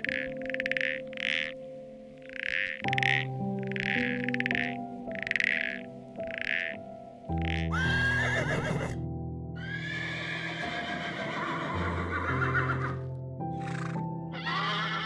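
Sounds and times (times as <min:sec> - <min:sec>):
background music with sustained chords: 0:00.0 - 0:15.0
horses neighing: 0:07.6 - 0:09.0, 0:09.6 - 0:15.0.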